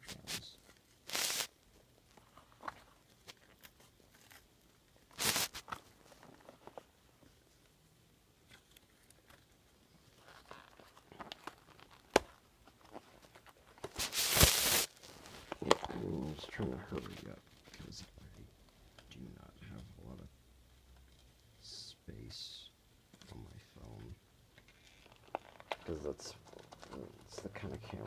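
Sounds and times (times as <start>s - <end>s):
packaging rustling and crinkling: 0.1s - 7.0s, 8.5s - 18.3s, 24.6s - 28.0s.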